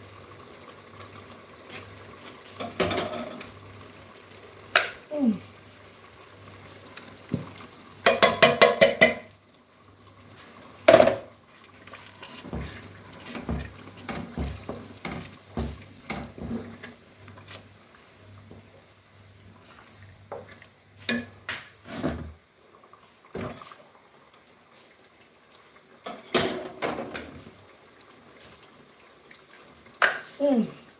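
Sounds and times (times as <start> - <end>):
wooden spoon stirring sauce in pot: 10.2 - 21.9.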